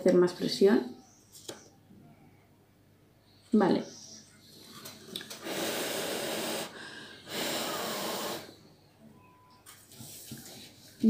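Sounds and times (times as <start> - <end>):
person blowing puffs of breath: 5.3 - 8.7.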